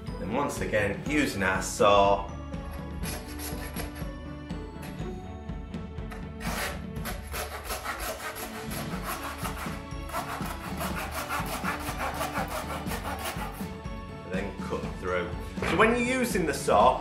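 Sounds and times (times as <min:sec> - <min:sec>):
background music: 0:00.0 - 0:17.0
hand bone saw cutting bones: 0:02.8 - 0:04.1, 0:06.4 - 0:13.7.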